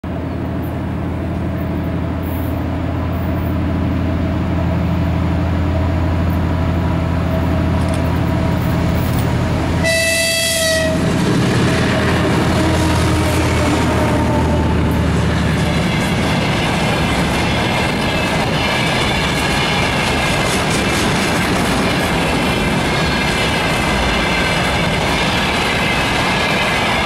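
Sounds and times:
diesel locomotive engine droning: 0.0 - 27.0
locomotive horn blast: 9.8 - 11.2, 11.8 - 15.2.

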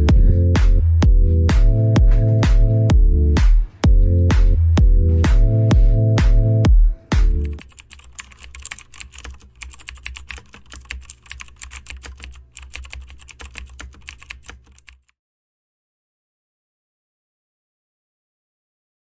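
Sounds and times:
keyboard typing: 7.1 - 15.2.

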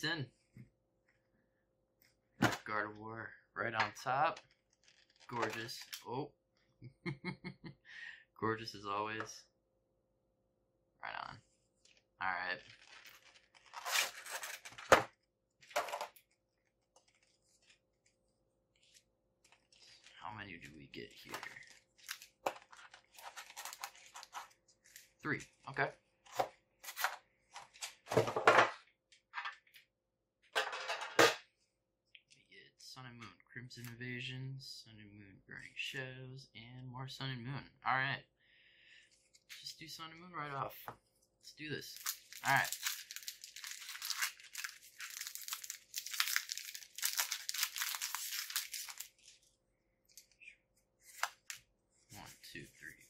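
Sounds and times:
foil packs crinkling: 12.6 - 15.0, 21.2 - 25.2, 42.0 - 49.4.

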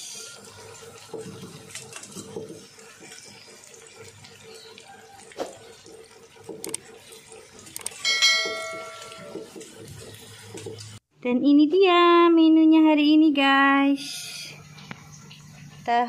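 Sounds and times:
oil sizzling and bubbling: 0.0 - 11.1, 14.3 - 16.0
sharp clicks: 7.8 - 8.0.

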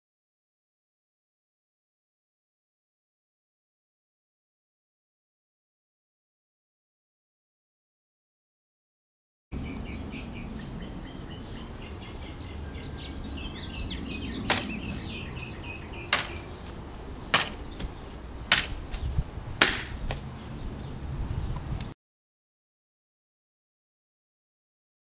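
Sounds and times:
birds chirping: 9.6 - 21.9
sword slicing through mat: 14.5 - 15.0, 16.1 - 16.5, 17.3 - 17.9, 18.5 - 20.2.

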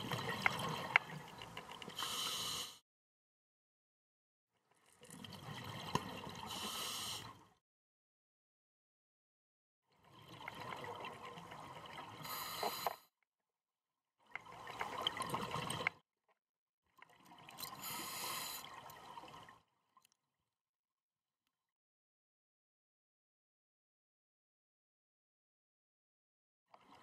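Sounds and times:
diver breathing through regulator: 1.9 - 2.8, 6.5 - 7.4, 12.2 - 13.0, 17.8 - 18.7.

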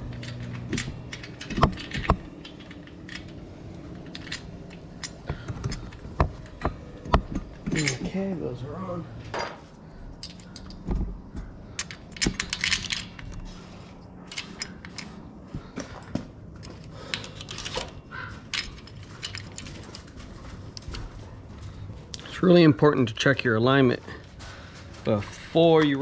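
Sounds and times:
light metal clicks and clinks: 7.6 - 8.2.

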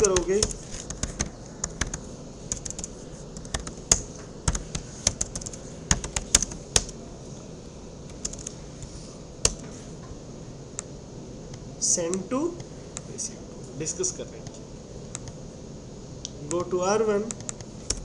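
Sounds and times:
computer keyboard typing: 0.0 - 7.0, 8.1 - 8.6, 9.4 - 9.6, 15.1 - 15.4, 16.5 - 18.0.

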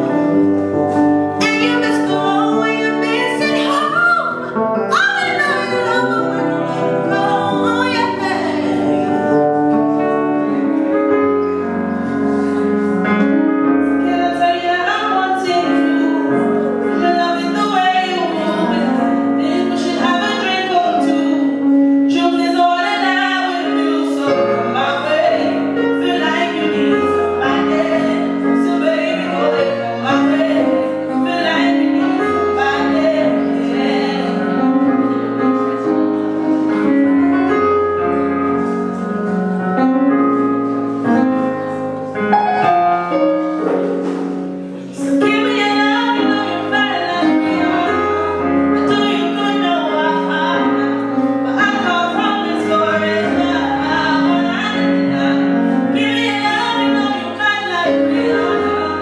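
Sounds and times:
keyboard chords: 0.0 - 59.0
woman singing into a microphone: 0.9 - 9.3, 13.0 - 36.1, 44.9 - 59.0.

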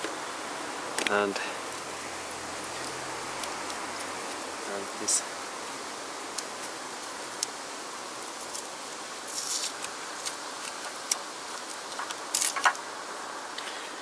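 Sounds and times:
plastic rustling: 8.3 - 12.9.

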